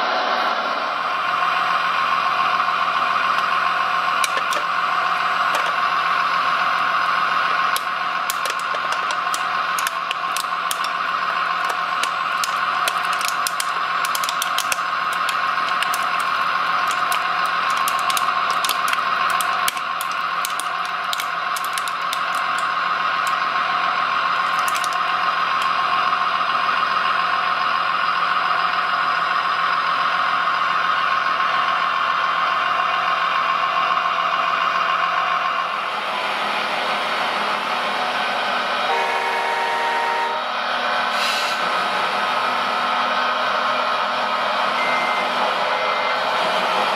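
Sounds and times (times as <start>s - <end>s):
fast irregular clicking and rattling: 4.2s - 4.7s, 5.4s - 5.8s, 7.7s - 23.4s, 24.4s - 25.8s.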